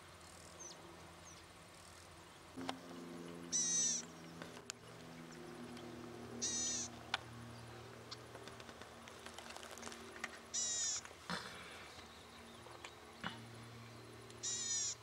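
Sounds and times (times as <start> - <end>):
bird rasping buzz song: 0.0 - 15.0.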